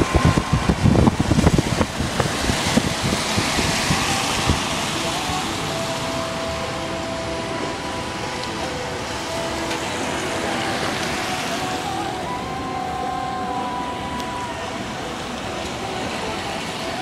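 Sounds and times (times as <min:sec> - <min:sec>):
car driving on wet road: 0:00.0 - 0:17.0
faint held tones: 0:05.0 - 0:17.0.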